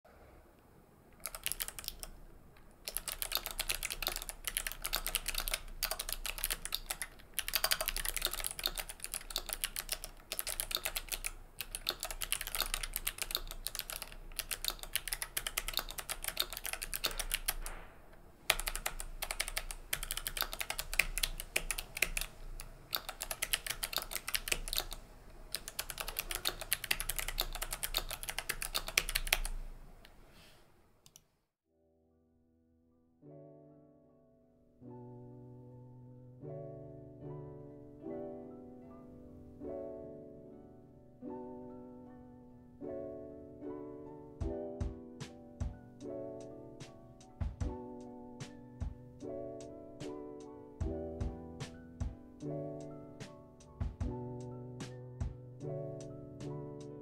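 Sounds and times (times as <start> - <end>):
mechanical keyboard typing: 1.2 - 2.2, 2.8 - 17.8, 18.4 - 29.8.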